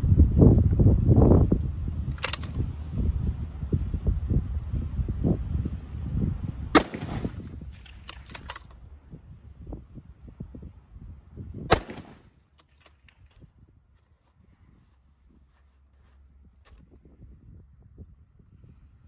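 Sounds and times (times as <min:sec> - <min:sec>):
rifle bolt clicking: 0:02.2 - 0:02.6, 0:08.0 - 0:08.8, 0:12.5 - 0:13.2
rifle shots with echo: 0:06.8 - 0:08.5, 0:11.7 - 0:12.4.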